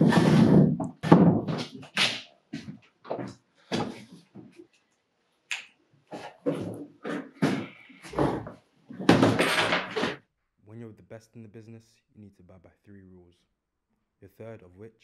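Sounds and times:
short knocks and clatters: 0.0 - 4.6, 6.2 - 10.2.

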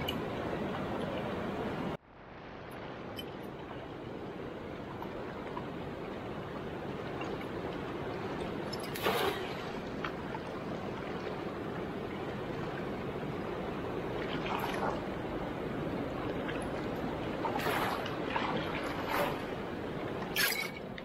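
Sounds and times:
river rushing: 0.0 - 21.0
net splashing in water: 9.0 - 9.8.

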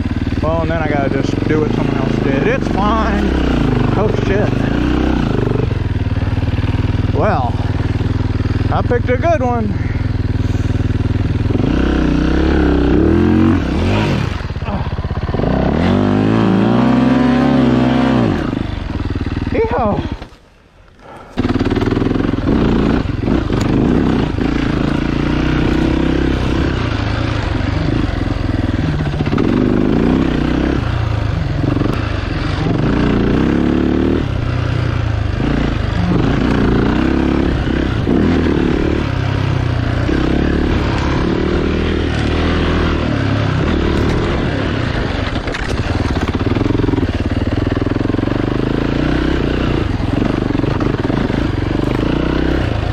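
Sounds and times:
motorcycle engine revving: 0.0 - 52.9.

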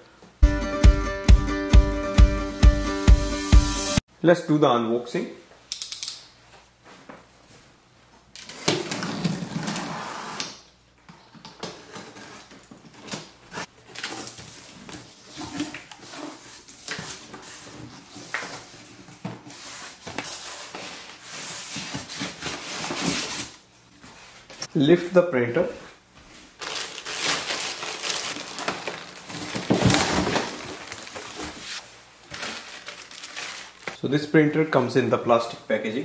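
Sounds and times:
foam packing handled: 26.6 - 34.0
cardboard box scraping: 28.1 - 31.8.

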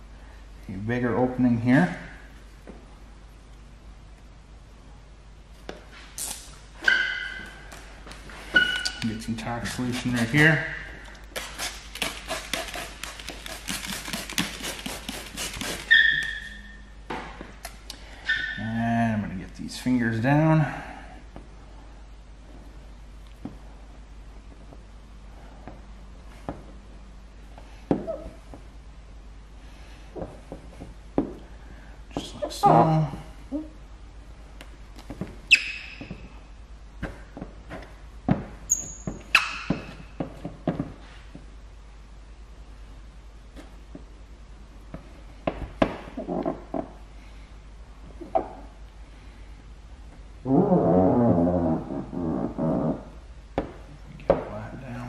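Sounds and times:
short high squeak: 6.8 - 7.6, 8.5 - 9.0, 15.8 - 16.9, 18.2 - 18.6, 35.5 - 36.2, 38.7 - 39.8
plastic squeegee squeaking on film: 8.5 - 16.8, 35.5 - 36.3, 38.7 - 40.0.

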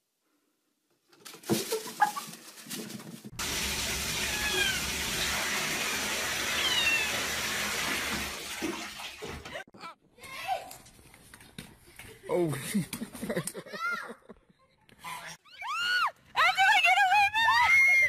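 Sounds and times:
toilet water rushing: 3.3 - 9.5
cat meowing: 4.2 - 4.9, 6.5 - 7.2.

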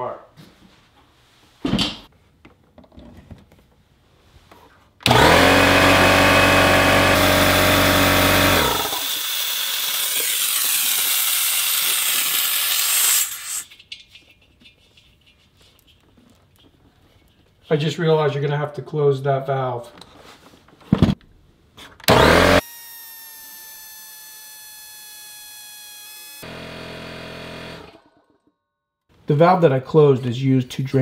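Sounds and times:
air compressor running: 5.0 - 13.6, 22.1 - 28.0
air hissing from drain valve: 10.8 - 13.7.

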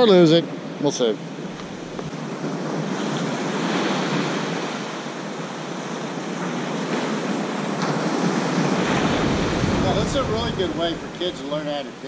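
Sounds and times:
surf breaking on beach: 6.8 - 12.0.

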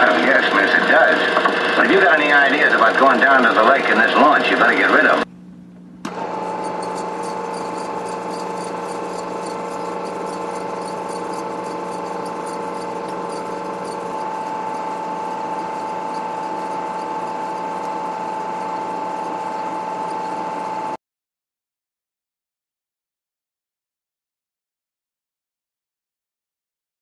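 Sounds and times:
low hum: 0.0 - 21.0
projector motor whine: 0.0 - 21.0
faint rapid ticking: 6.4 - 20.2.

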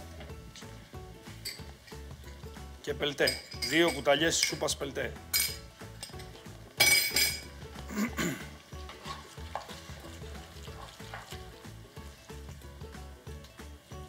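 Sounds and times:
meat sizzling in a frying pan: 7.4 - 14.0
metal spoon scraping a pan: 8.6 - 11.5.

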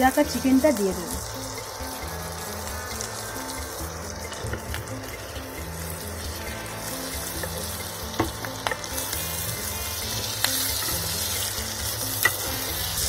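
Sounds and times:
chicken sizzling in oil: 0.0 - 13.0
spatula knocking against pan: 7.4 - 8.9.

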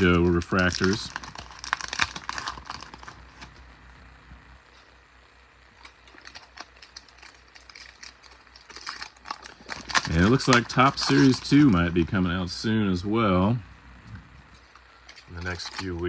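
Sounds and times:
wrapper crinkling: 0.0 - 3.6, 5.7 - 12.0, 14.6 - 16.0
cards ticking: 0.0 - 3.7, 5.7 - 12.1, 14.6 - 16.0.

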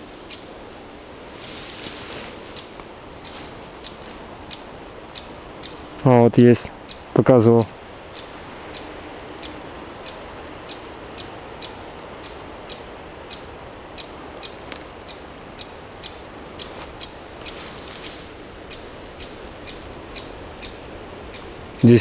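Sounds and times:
regular ticking: 6.8 - 12.8
rapid short high beeps: 8.8 - 12.4, 14.4 - 16.3.

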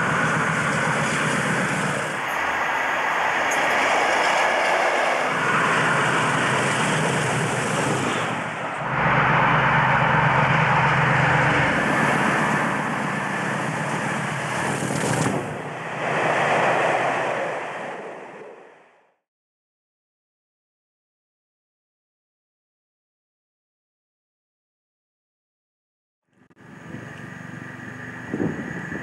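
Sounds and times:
wheels on rails: 0.0 - 18.9
diesel locomotives passing at speed: 0.0 - 19.2, 26.6 - 29.0.

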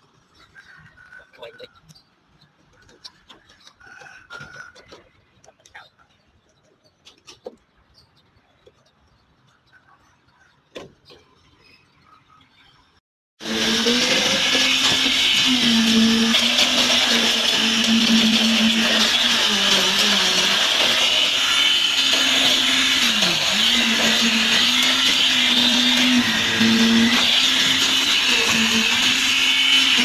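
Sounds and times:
concrete vibrator motor whine: 13.4 - 30.0.

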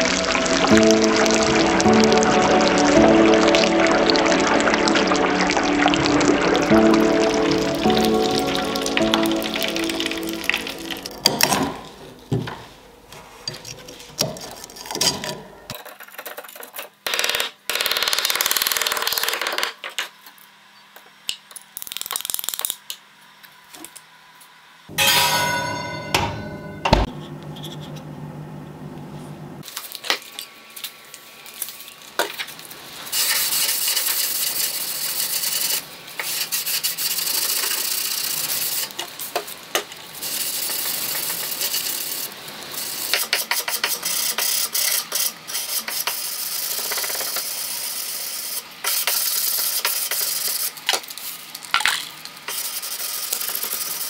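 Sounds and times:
metallic ringing: 24.9 - 27.1.

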